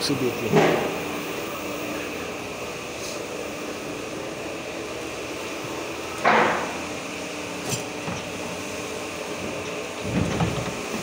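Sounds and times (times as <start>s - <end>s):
steady background hum: 0.0s - 11.0s
loud metallic clank: 6.2s - 6.8s.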